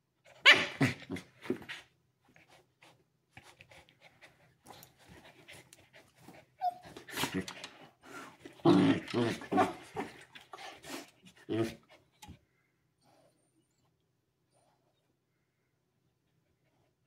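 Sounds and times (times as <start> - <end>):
dog whining: 0.3 - 1.2, 6.6 - 7.6
dogs panting and snuffling: 1.4 - 8.6, 9.7 - 12.4.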